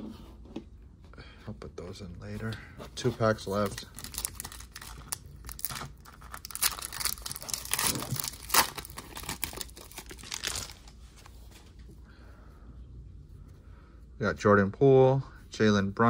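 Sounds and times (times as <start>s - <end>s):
foil wrapper tearing and crinkling: 3.5s - 10.9s.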